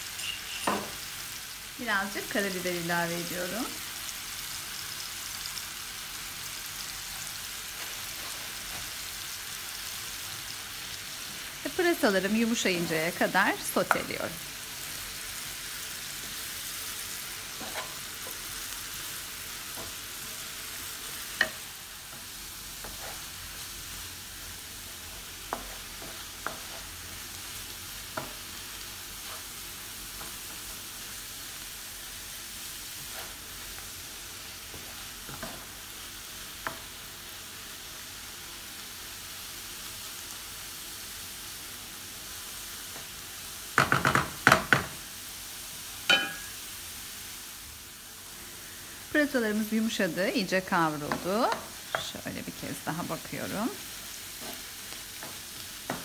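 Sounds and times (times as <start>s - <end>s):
leeks sizzling in oil: 0.0s - 56.0s
wooden spoon knocking on pan: 0.7s - 1.0s, 43.8s - 45.0s.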